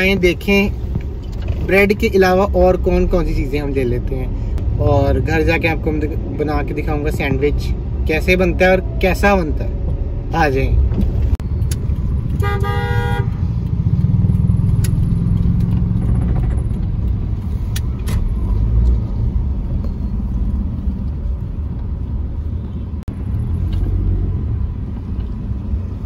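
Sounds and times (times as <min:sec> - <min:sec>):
car engine and road rumble: 0:00.0 - 0:26.0
vehicle horn: 0:12.4 - 0:13.4.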